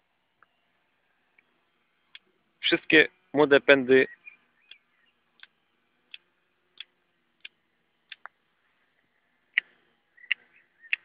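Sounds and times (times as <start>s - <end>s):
pruning shears snipping: 5.4s - 8.4s.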